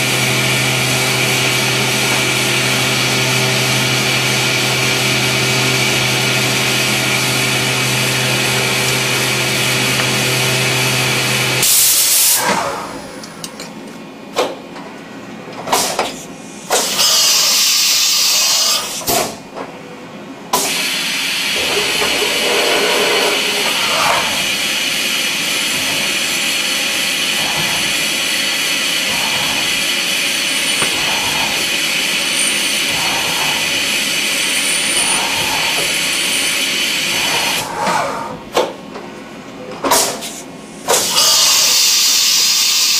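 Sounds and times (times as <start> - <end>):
milling machine cutting metal: 21.3 - 37.7.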